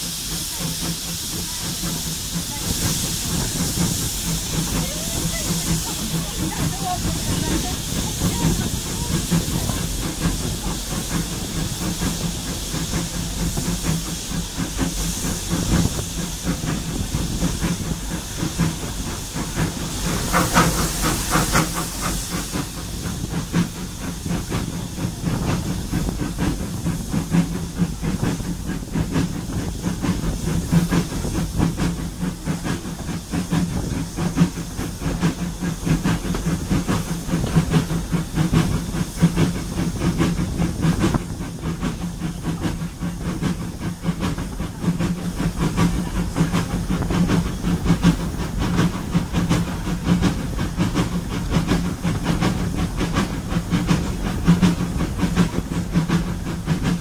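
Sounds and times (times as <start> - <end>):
train drone and hiss: 0.0 - 57.0
train wheels clattering: 0.0 - 57.0.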